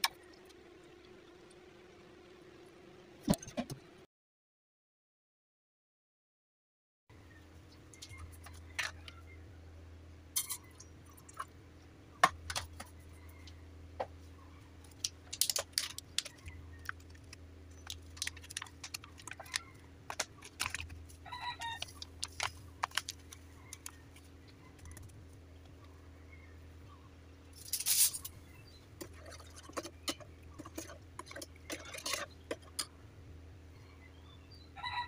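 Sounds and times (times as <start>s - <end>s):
steady low hum: 7.1s - 34.8s
plastic packet crinkling: 14.9s - 21.0s, 21.6s - 24.0s.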